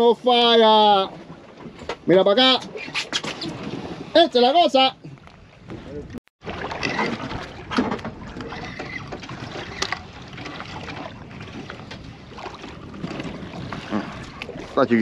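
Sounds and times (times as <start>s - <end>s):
water washing against boat hull: 0.5s - 15.0s
wind on microphone: 5.4s - 15.0s.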